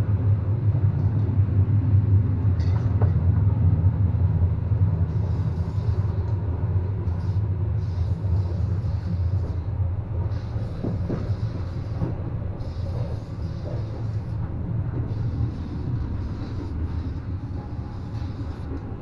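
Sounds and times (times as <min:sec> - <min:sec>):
train car rumble: 0:00.0 - 0:19.0
spray paint can hissing: 0:10.3 - 0:14.4, 0:15.1 - 0:18.8.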